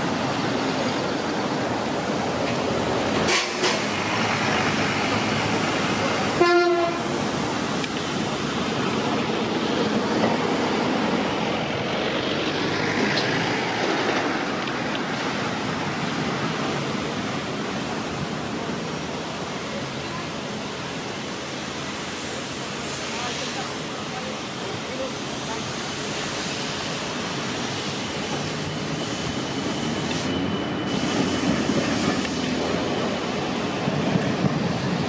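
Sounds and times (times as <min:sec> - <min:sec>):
street traffic: 0:00.0 - 0:35.0
car horn toot: 0:06.4 - 0:07.1.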